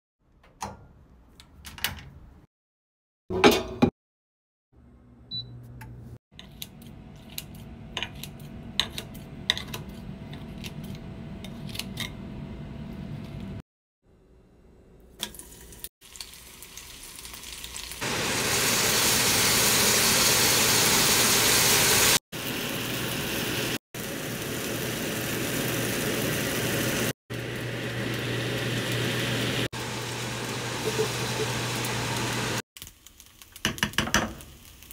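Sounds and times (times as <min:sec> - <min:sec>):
food sizzling in hot oil: 0:15.3 - 0:34.9.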